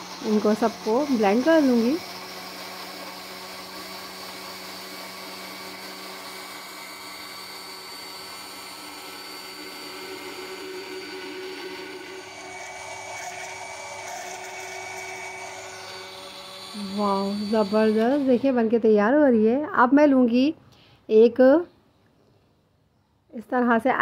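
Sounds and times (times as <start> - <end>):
blender motor running: 0.0 - 19.1.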